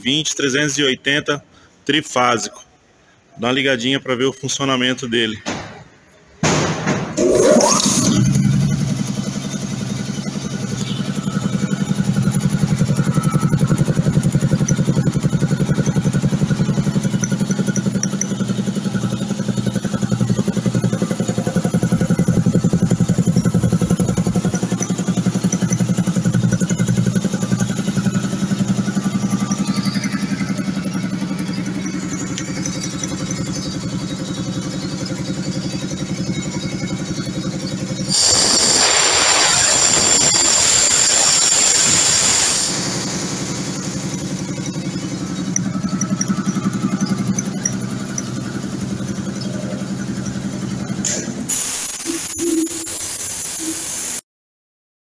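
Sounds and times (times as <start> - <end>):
air compressor running: 6.8 - 54.2
compressed air hissing out: 38.1 - 43.8, 51.5 - 54.2.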